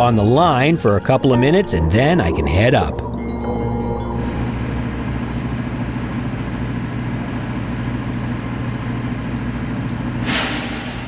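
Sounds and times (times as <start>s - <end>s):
boat engine idling: 2.9s - 10.2s.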